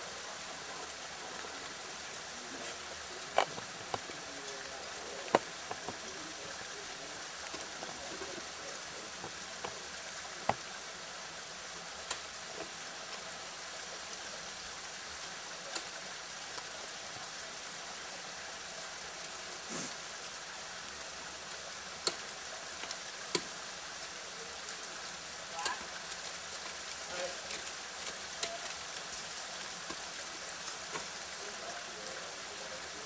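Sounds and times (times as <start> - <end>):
steady hiss: 0.0 - 33.0.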